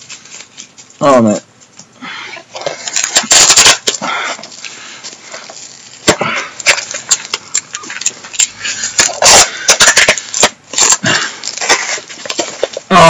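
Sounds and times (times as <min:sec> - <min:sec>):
packaging tearing and crinkling: 0:02.7 - 0:04.0, 0:06.6 - 0:13.0.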